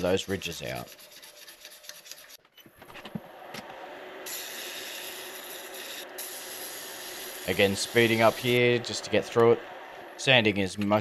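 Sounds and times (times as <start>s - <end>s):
sanding hiss on wood: 4.3s - 9.9s.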